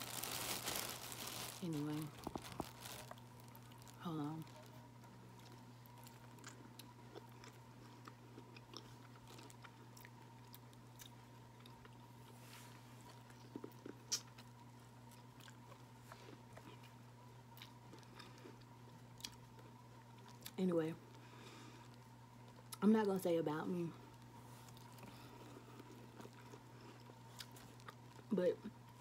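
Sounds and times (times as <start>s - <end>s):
faint electrical hum: 0.0s - 29.0s
chewing and mouth clicks: 5.3s - 12.0s, 13.1s - 17.0s, 24.2s - 28.3s.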